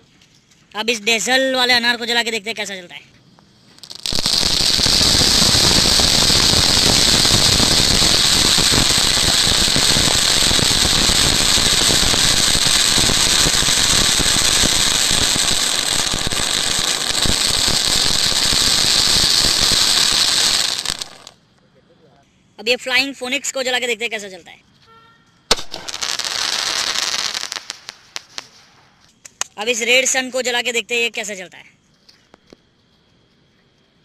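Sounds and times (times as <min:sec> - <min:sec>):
firework fountain hissing and crackling: 0:00.8 - 0:21.4, 0:25.5 - 0:31.4.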